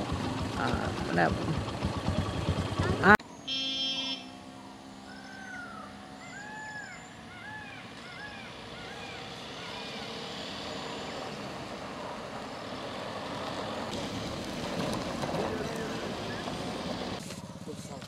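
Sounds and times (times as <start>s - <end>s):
pickup truck approaching: 0.0s - 18.0s
bird whistling calls: 5.0s - 10.2s.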